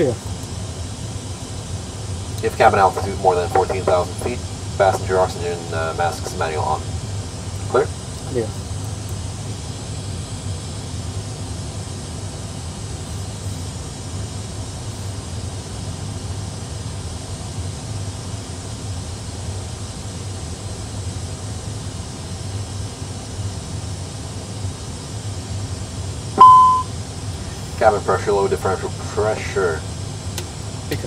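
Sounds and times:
low even hum: 0.0 - 31.0
airflow hiss: 1.6 - 10.8.

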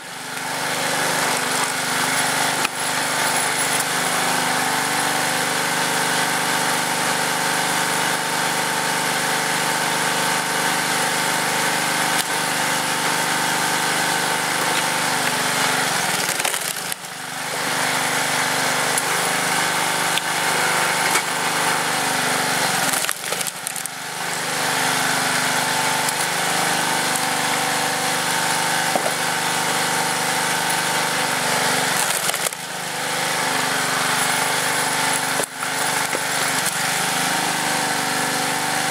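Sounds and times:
log splitter engine running: 0.0 - 38.9
wood cracking and splitting: 0.3 - 4.1, 11.6 - 37.4.

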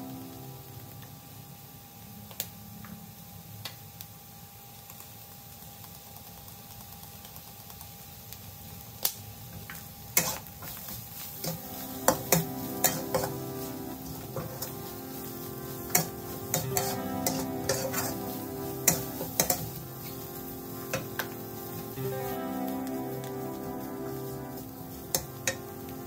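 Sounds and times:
faint sizzle: 0.0 - 26.0
metal spatula scraping a wok: 10.2 - 21.8.

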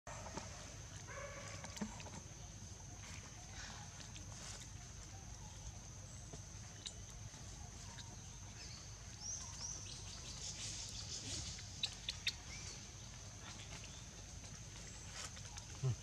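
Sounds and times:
birds chirping: 3.4 - 16.0.

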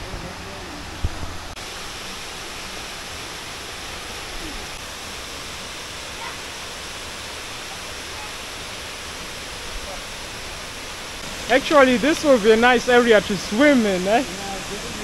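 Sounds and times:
shallow rocky stream: 0.0 - 15.0
waterfall rushing: 0.0 - 15.0.

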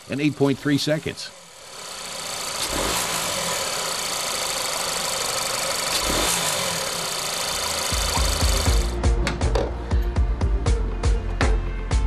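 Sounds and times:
car engine idling: 0.0 - 9.0.

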